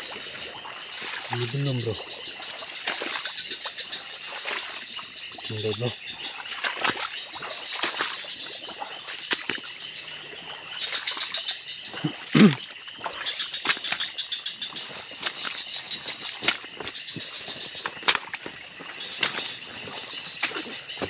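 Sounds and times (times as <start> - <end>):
insects chirring: 0.0 - 21.0
water sloshing: 0.0 - 21.0
footsteps rustling through undergrowth: 13.0 - 21.0.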